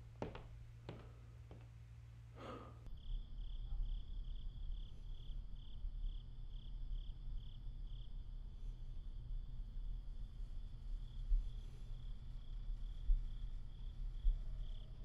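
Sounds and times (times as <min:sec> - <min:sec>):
low steady hum: 0:00.0 - 0:15.0
person sighing: 0:02.4 - 0:02.8
crickets chirping: 0:02.8 - 0:15.0.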